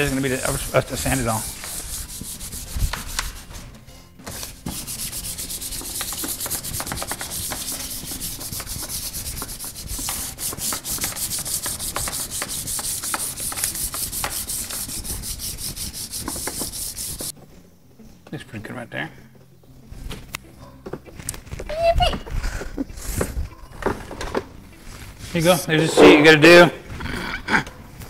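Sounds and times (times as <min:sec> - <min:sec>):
sandpaper scraping plastic: 0:00.0 - 0:03.6, 0:04.3 - 0:17.3.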